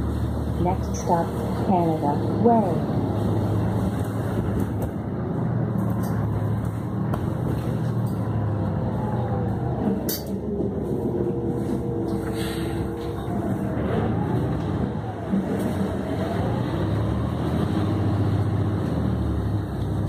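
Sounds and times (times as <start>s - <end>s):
bus engine humming: 0.0s - 20.0s
tyres hissing on wet road: 12.2s - 12.9s.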